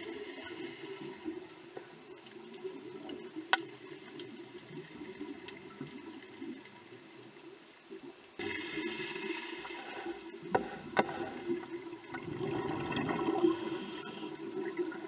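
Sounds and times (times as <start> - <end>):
underwater rush of water: 0.0 - 15.0
faint clicks: 0.4 - 8.1.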